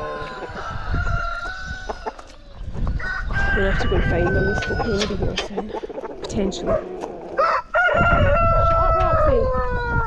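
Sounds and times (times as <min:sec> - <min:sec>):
chickens clucking: 0:00.0 - 0:10.0
cockerels crowing: 0:00.0 - 0:10.0.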